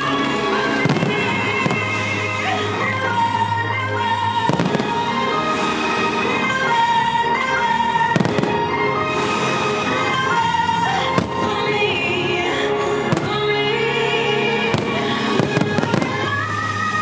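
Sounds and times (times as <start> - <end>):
music of long held notes: 0.0 - 17.0
firework bangs: 0.1 - 2.3, 4.4 - 5.3, 13.1 - 13.6, 14.7 - 16.6.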